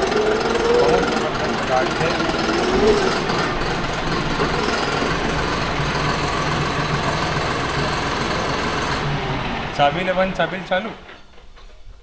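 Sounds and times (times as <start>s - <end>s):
tractor diesel engine running: 0.0s - 11.6s.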